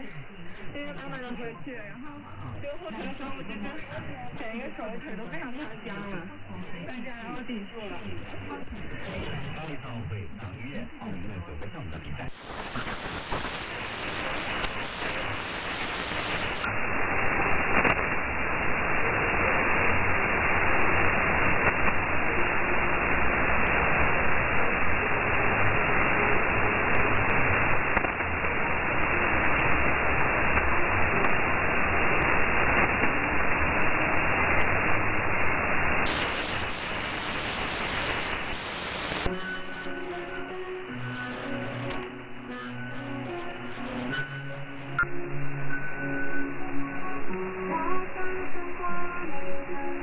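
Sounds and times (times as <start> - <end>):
radio static hiss: 0.0 - 50.0
weak radio broadcast: 0.0 - 50.0.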